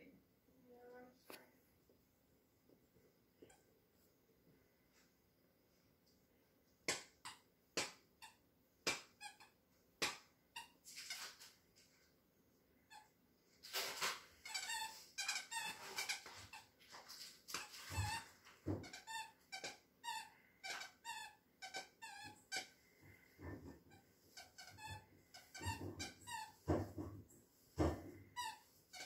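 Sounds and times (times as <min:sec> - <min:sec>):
dog toy squeaking: 0:14.4 - 0:16.7, 0:18.8 - 0:22.7, 0:23.9 - 0:26.6.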